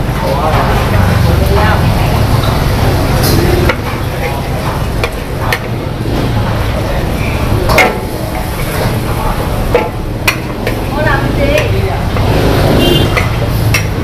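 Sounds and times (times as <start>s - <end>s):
noodles sizzling in a wok: 1.4s - 14.0s
metal ladle scraping wok: 2.2s - 14.0s
ladle clanging against wok: 13.0s - 14.0s.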